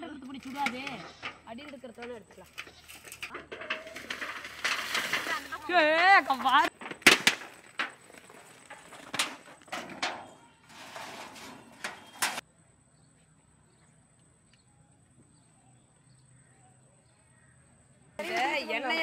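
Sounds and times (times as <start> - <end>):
scraping rustle: 0.2 - 12.4.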